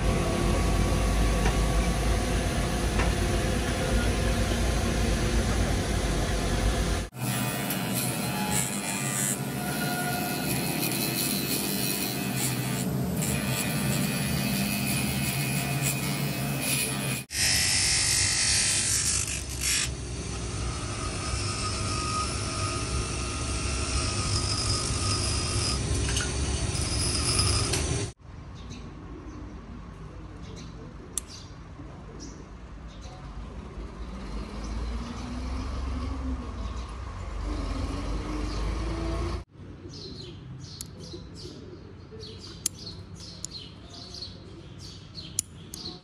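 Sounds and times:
power tool running: 0.0 - 28.2.

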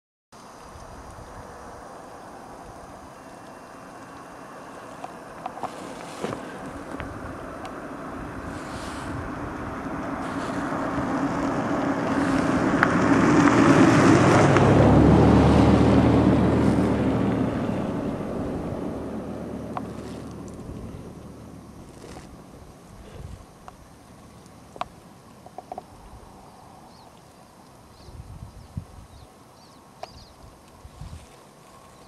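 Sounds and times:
quad bike engine passing: 5.3 - 22.4.

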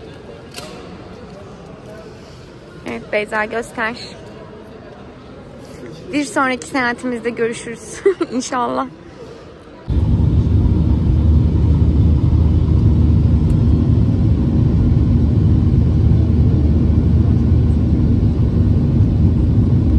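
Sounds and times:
jet engine cabin rumble: 9.9 - 19.9.

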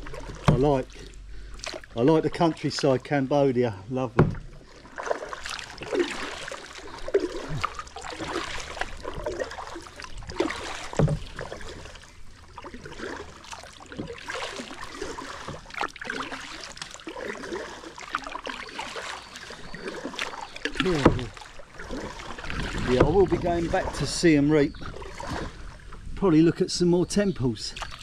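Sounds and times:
paddle splashing through water: 0.0 - 3.2, 4.1 - 26.5, 27.7 - 28.0
low thump: 4.1 - 4.6.

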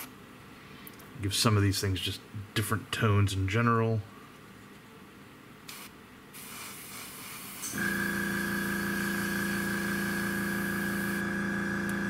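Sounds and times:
airbrush hissing: 5.7 - 7.9, 8.6 - 11.2
compressor humming: 7.5 - 12.0.

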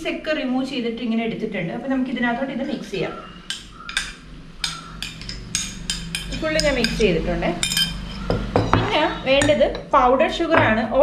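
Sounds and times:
metal spoon clinking on ceramic dishes: 3.4 - 9.9.

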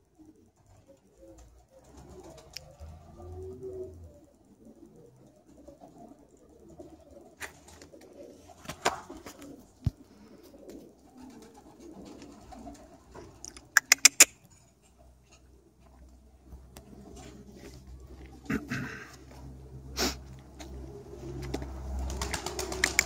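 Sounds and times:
pigeons cooing: 0.0 - 14.3, 15.0 - 23.0
sharp claps: 22.3 - 23.0.

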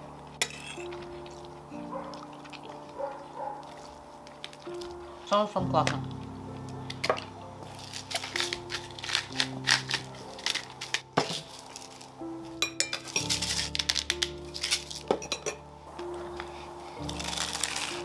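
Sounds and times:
background music: 0.0 - 18.0
cutlery clinking on plate: 12.6 - 13.4, 15.1 - 15.6.

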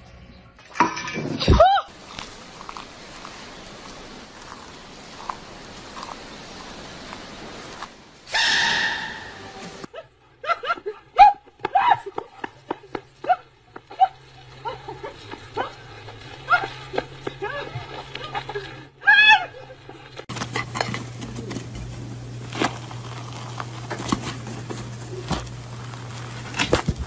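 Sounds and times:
faint steady hiss: 1.9 - 8.4.

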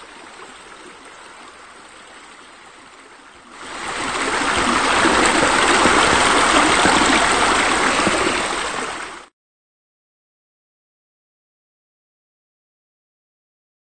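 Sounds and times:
waterfall splashing into pool: 3.6 - 9.3.

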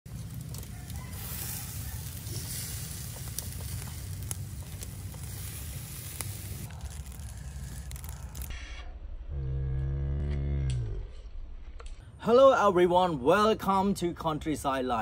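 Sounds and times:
meat sizzling on a grill: 0.1 - 8.5
sharp crackling pops: 0.1 - 8.6.

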